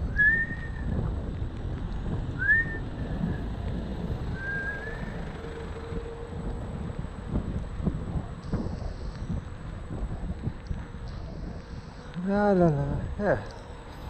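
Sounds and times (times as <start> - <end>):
electric scooter road noise: 0.0 - 14.0
wind rushing over microphone: 0.0 - 14.0
upward gliding whistle tones: 0.1 - 0.9, 2.4 - 3.5, 4.3 - 6.2.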